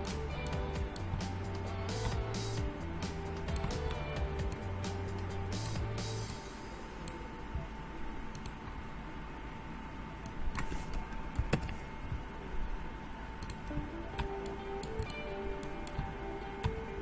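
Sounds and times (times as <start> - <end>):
background hum: 0.0 - 17.0
computer mouse clicks: 3.5 - 4.7, 8.3 - 8.6, 13.4 - 16.8.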